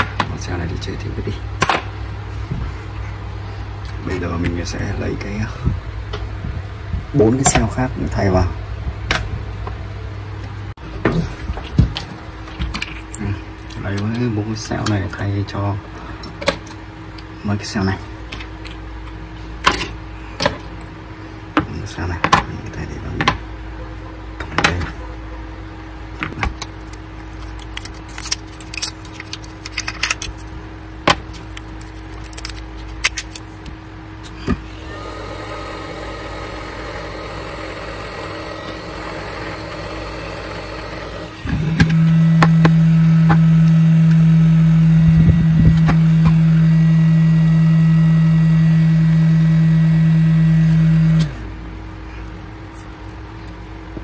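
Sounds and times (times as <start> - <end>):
loud low hum: 24.6 - 54.0
steady whir: 34.2 - 51.6.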